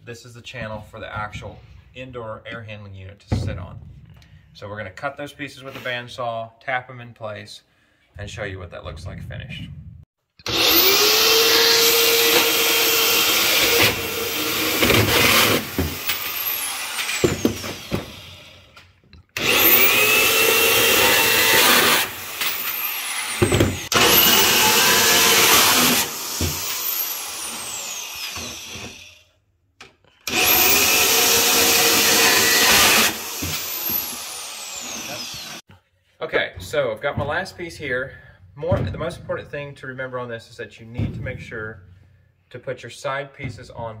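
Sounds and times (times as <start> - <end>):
bandsaw cutting metal: 10.4 - 18.7, 19.4 - 29.2, 30.2 - 35.6
saw motor winding down whine: 30.3 - 35.6.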